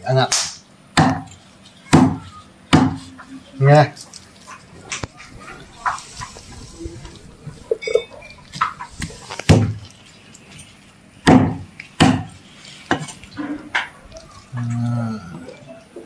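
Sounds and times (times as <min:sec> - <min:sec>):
cleaver chopping on board: 0:00.4 - 0:01.3, 0:01.9 - 0:03.0, 0:09.5 - 0:09.8, 0:11.3 - 0:13.1.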